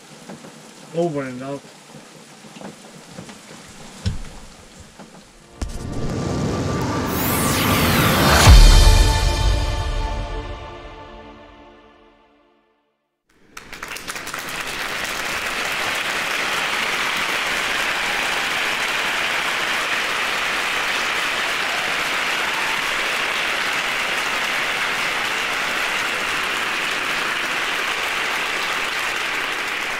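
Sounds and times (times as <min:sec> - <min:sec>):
crowd applause: 0:13.4 - 0:29.9.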